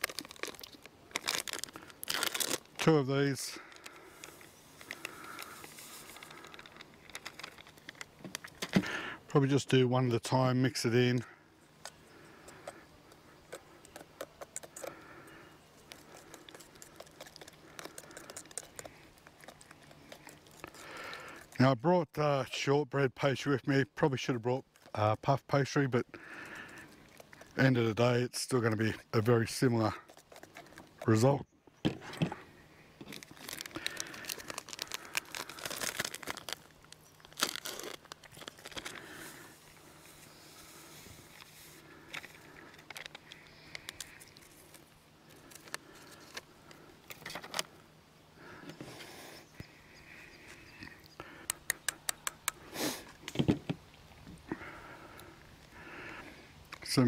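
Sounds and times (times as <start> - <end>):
packet crinkling and tearing: 0.0 - 9.0, 15.8 - 21.6, 29.5 - 31.2, 33.0 - 47.8.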